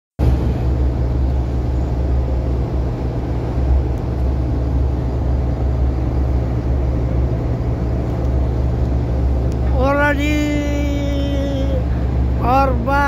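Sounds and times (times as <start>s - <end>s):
diesel engine rumbling: 0.2s - 13.0s.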